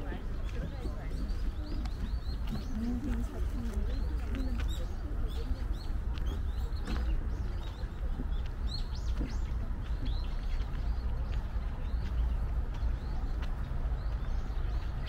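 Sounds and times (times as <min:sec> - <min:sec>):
small birds chirping: 0:00.0 - 0:15.0
steady low rumble: 0:00.0 - 0:15.0.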